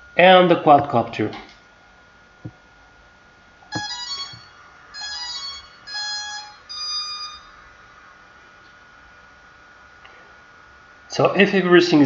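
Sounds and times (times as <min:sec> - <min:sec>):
short multi-note electronic beeps: 0:03.7 - 0:07.6.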